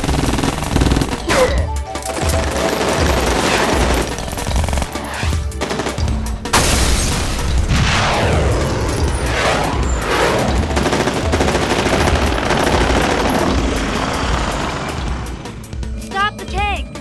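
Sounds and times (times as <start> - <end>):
automatic gunfire: 0.0 - 1.3, 10.7 - 14.8
explosions: 6.5 - 10.9.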